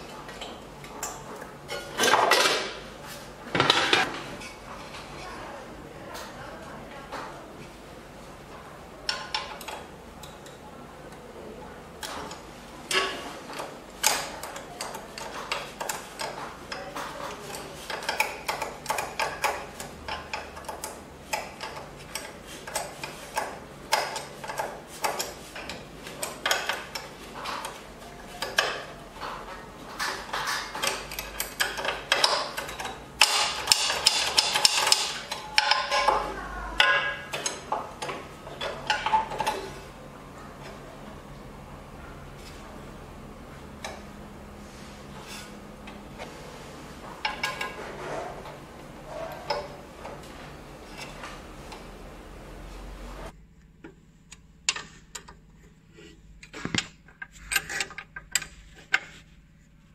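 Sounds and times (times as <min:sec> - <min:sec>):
metal clicks and knocks: 0:09.1 - 0:11.2, 0:12.0 - 0:39.8, 0:47.1 - 0:48.6, 0:53.7 - 0:55.8, 0:56.4 - 0:59.1.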